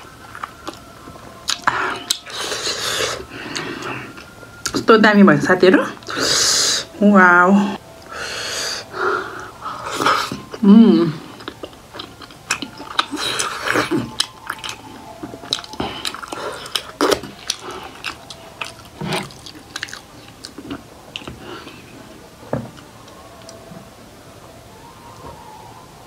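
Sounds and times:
close chewing and lip smacks: 0:00.2 - 0:04.8, 0:11.3 - 0:22.0.

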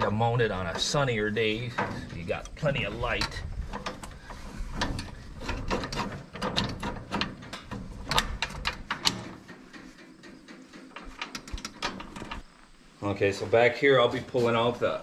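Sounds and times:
metal linkage parts clinking: 0:00.6 - 0:12.4.

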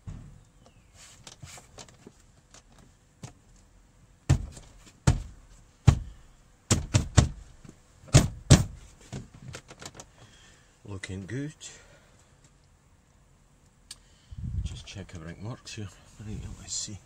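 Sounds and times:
hand thumping plastic door panel: 0:04.3 - 0:06.1, 0:06.7 - 0:07.4, 0:08.1 - 0:09.9.

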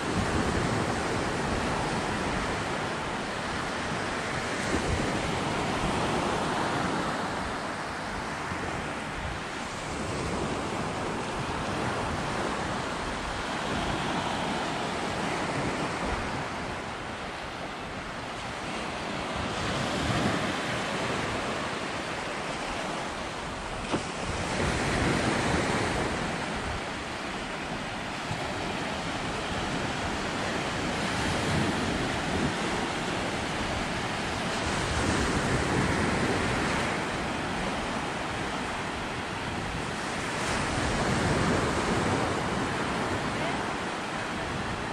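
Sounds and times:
sea waves washing up beach: 0:00.0 - 0:44.9.

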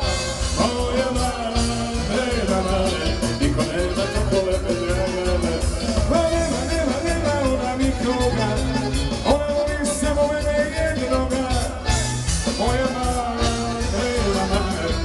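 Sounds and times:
drum kit: 0:00.0 - 0:15.0
people singing: 0:12.6 - 0:15.0.

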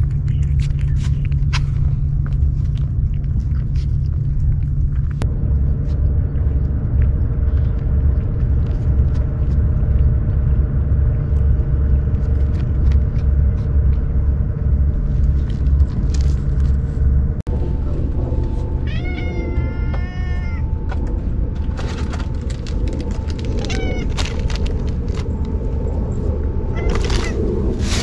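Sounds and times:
steady low rumble: 0:00.0 - 0:28.0
cat meowing: 0:18.8 - 0:20.8, 0:23.6 - 0:24.2, 0:26.7 - 0:27.4.

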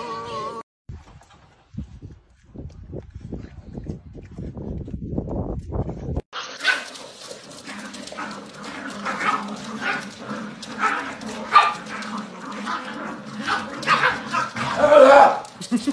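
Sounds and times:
dogs yipping and barking: 0:06.4 - 0:15.9.

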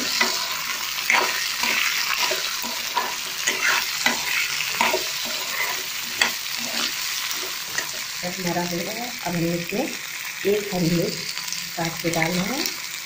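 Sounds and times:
metal spatula scraping pan: 0:00.0 - 0:08.1
peas sizzling in hot oil: 0:00.0 - 0:13.0.

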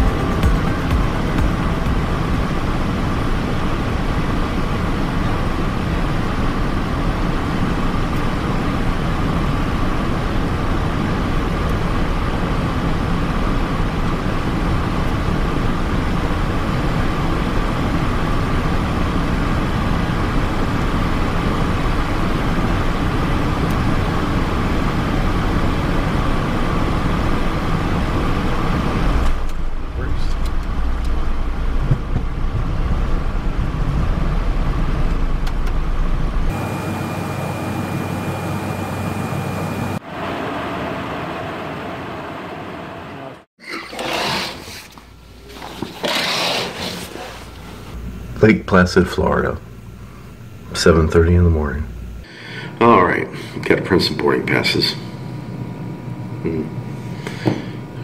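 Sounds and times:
jet cockpit airflow and engine: 0:00.0 - 0:58.0.

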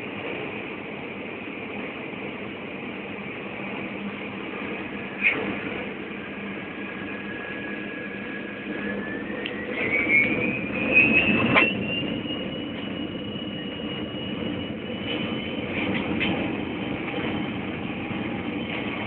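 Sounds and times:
engine rumble: 0:00.0 - 0:19.0
jet engines spooling up: 0:02.3 - 0:19.0.

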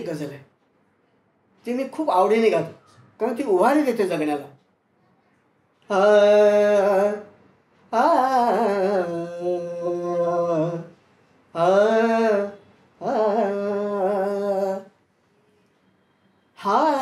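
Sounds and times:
man singing unaccompanied: 0:05.9 - 0:15.0, 0:16.6 - 0:17.0.

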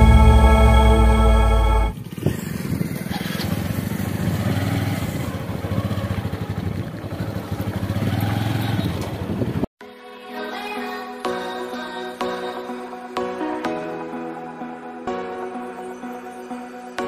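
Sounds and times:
background music: 0:00.0 - 0:02.0, 0:09.8 - 0:17.0
motorcycle engine running: 0:01.7 - 0:09.7.

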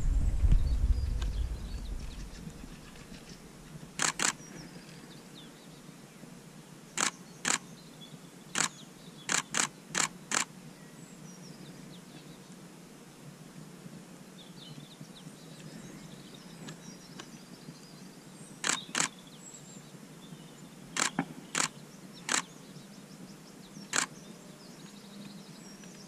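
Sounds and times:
wind rumble on microphone: 0:00.0 - 0:03.5
camera shutter firing: 0:04.0 - 0:04.4, 0:07.0 - 0:07.6, 0:08.6 - 0:10.5, 0:18.6 - 0:19.2, 0:21.0 - 0:21.7, 0:22.3 - 0:22.5, 0:23.9 - 0:24.1.

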